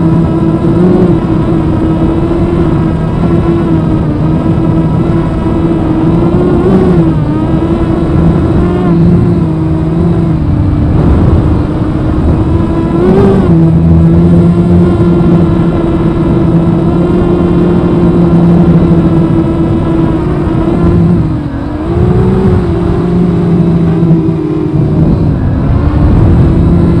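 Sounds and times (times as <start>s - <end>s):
quadcopter motors whining: 0.0s - 27.0s.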